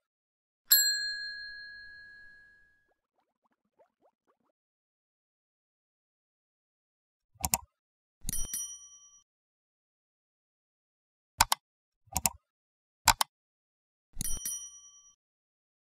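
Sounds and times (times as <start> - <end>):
bright bell ding: 0.7 - 2.7
mouse double-click: 7.4 - 7.7, 11.4 - 12.4, 13.1 - 13.3.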